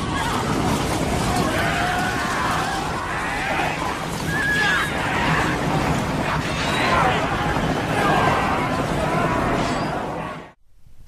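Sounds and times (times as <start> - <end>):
steady background noise: 0.0 - 11.0
animal calls rising and falling: 1.6 - 5.7.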